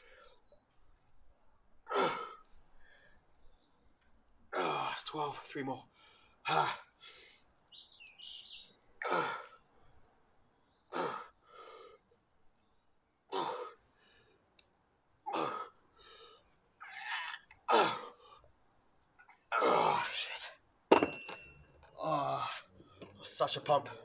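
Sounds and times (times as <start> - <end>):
bird chirping: 0.0 - 1.3, 3.1 - 4.2, 7.6 - 9.0, 9.6 - 11.5, 12.4 - 13.3.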